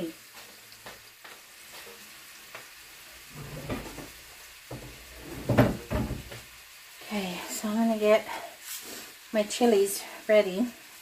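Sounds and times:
chicken sizzling in oil: 0.0s - 11.0s
knocks: 4.7s - 6.4s
loud thump: 4.7s - 6.4s.

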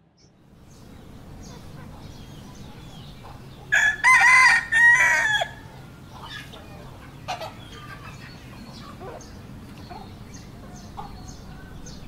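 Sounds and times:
rooster crowing: 3.7s - 5.8s.

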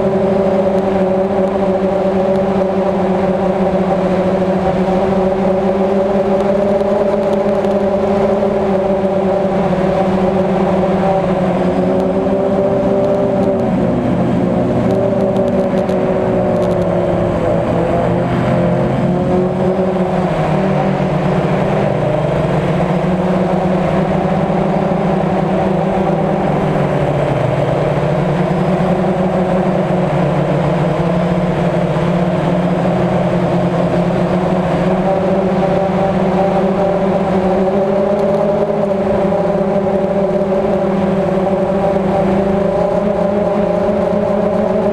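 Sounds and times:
drone propellers buzzing: 0.0s - 44.9s.

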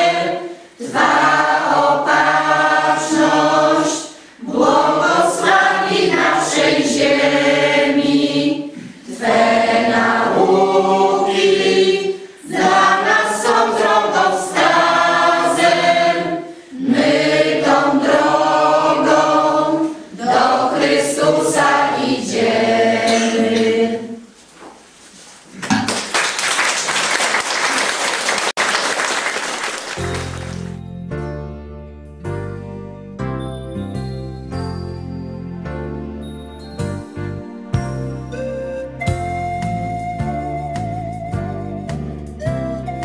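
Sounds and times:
mixed choir singing: 0.0s - 24.3s.

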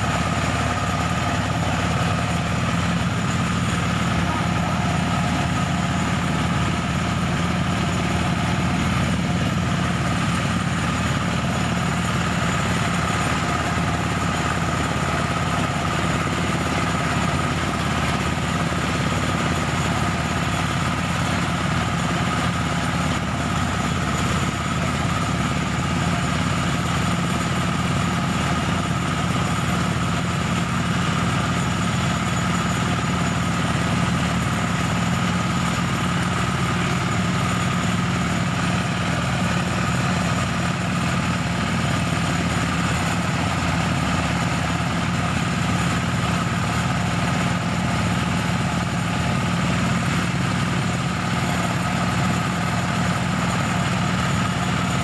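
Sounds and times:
rice thresher engine running: 0.0s - 55.0s.

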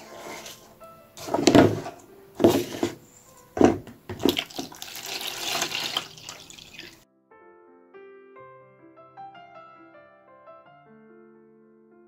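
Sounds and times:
milk pouring and splashing: 3.6s - 7.0s.

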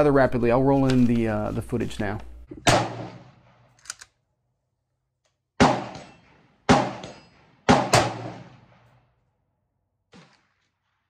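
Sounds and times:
rifle shots with echo: 2.6s - 3.8s, 5.6s - 9.2s, 10.1s - 11.0s.

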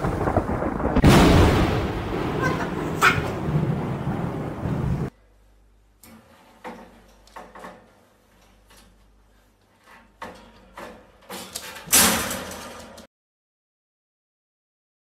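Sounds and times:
wire crate rattling: 9.8s - 13.1s.

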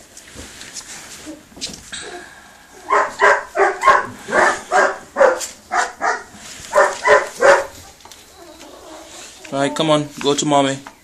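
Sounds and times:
puppy barking: 2.8s - 7.8s.

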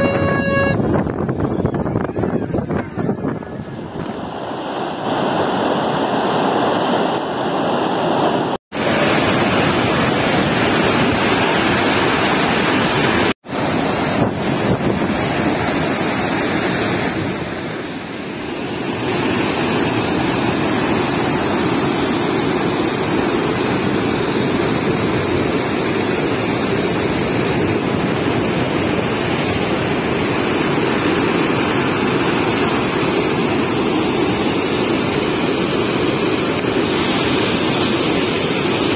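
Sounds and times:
water rushing from dam spillway: 2.6s - 38.9s.

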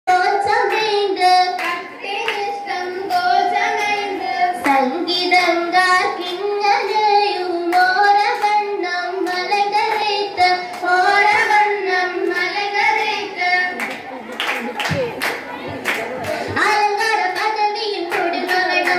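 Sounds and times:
girls singing in unison: 0.1s - 14.2s, 16.2s - 18.9s
hand claps: 1.5s - 4.0s, 4.6s - 5.6s, 7.6s - 13.1s, 13.7s - 18.9s.

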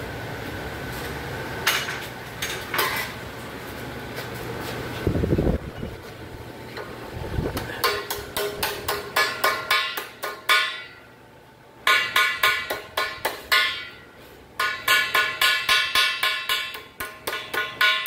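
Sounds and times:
hammer ringing on sheet steel: 7.8s - 11.2s, 11.8s - 18.0s.

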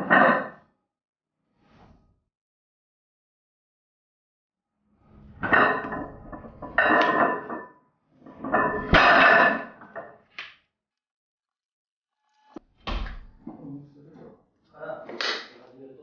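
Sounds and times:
barbell plates clanking and rattling: 5.2s - 10.2s.

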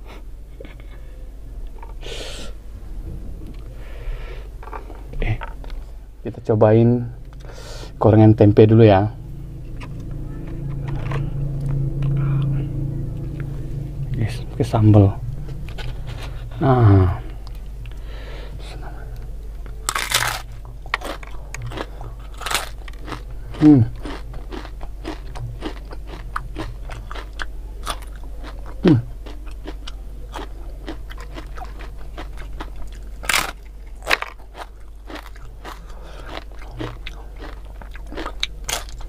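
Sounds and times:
crunching and chewing: 18.6s - 39.0s.

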